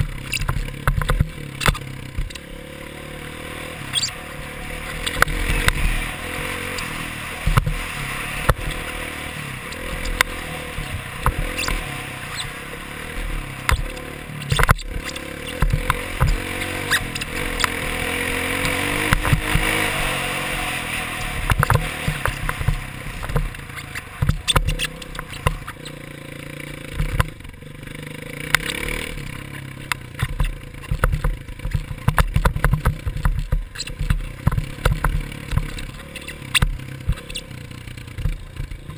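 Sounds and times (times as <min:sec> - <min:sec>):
dirt bike engine revving: 0:00.0 - 0:38.9
knocks and rattles from bumps: 0:29.4 - 0:38.9.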